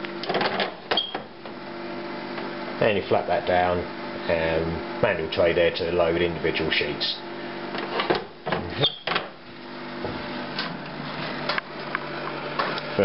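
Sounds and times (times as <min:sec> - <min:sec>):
printer humming: 0:00.0 - 0:13.0.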